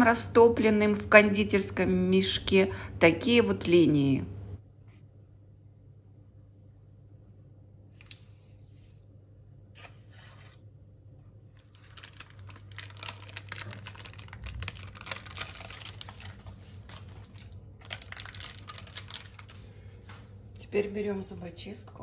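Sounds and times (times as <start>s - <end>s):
piping bag crinkling: 11.4s - 20.4s.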